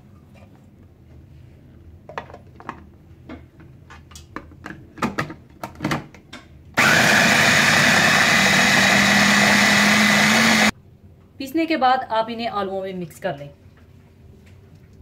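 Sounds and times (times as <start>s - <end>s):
electric chopper motor running: 6.8s - 10.7s.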